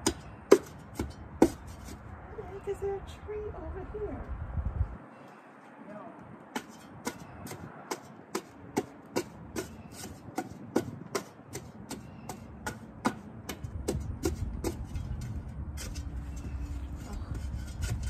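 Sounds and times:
shovel chopping into dry soil: 6.5s - 18.0s.

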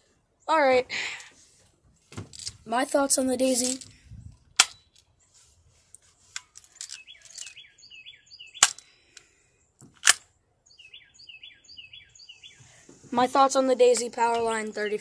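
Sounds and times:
songbird chirping: 0.0s - 15.0s
sharp clicks: 8.6s - 9.3s.

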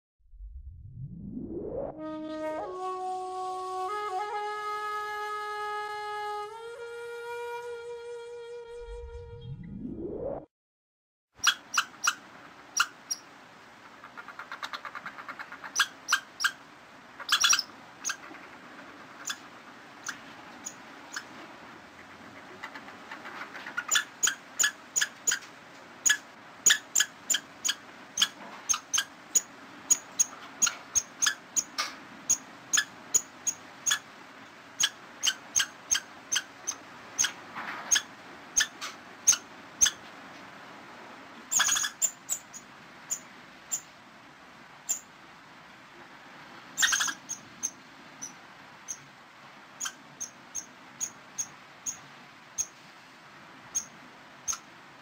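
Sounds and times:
squirrel chattering: 11.4s - 16.6s, 17.2s - 21.3s, 22.0s - 25.4s, 26.0s - 34.1s, 34.8s - 40.0s, 41.5s - 43.8s, 46.8s - 49.0s, 49.8s - 52.0s.

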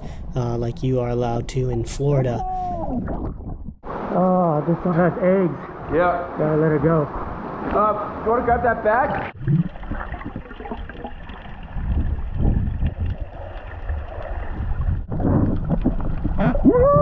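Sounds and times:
underwater churning rumble: 9.1s - 17.0s.

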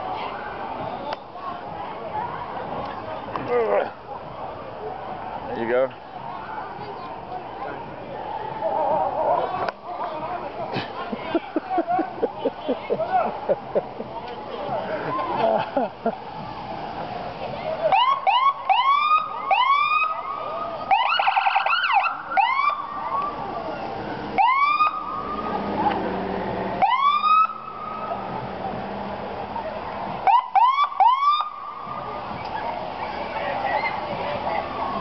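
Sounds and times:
police siren whoops: 17.9s - 23.3s, 26.8s - 27.8s, 30.2s - 31.5s.

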